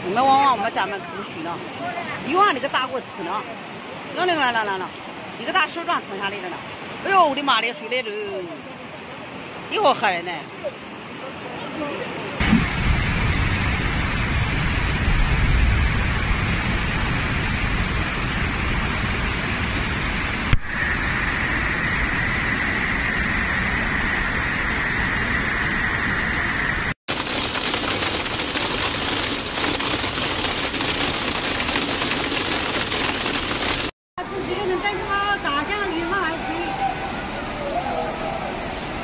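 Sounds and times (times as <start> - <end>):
rushing floodwater: 0.0 - 20.5, 27.1 - 39.0
heavy low rumble: 12.4 - 33.9.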